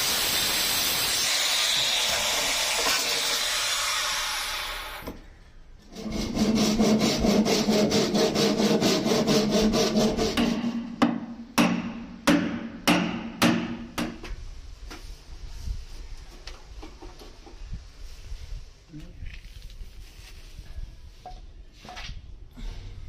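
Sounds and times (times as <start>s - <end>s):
saw cutting plywood: 0.2s - 5.1s, 5.8s - 10.7s.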